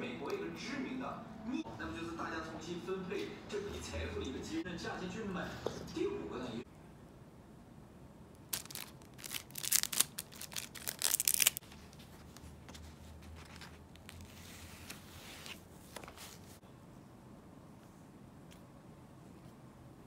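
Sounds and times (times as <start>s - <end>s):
tearing and crinkling rustles: 8.4s - 16.6s.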